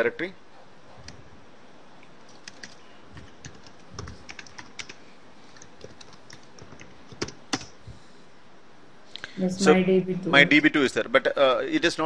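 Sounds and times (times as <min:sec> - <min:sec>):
keyboard typing: 0:02.2 - 0:07.8.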